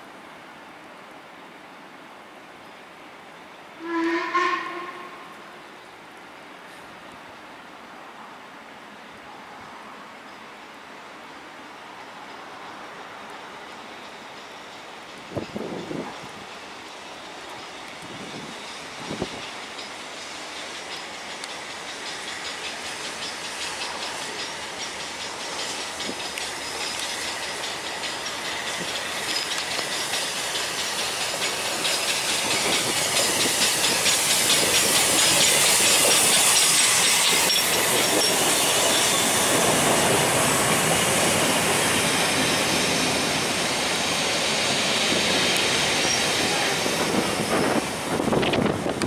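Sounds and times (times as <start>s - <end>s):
train wheels clattering: 13.6s - 49.0s
steam locomotive exhaust beat: 14.0s - 49.0s.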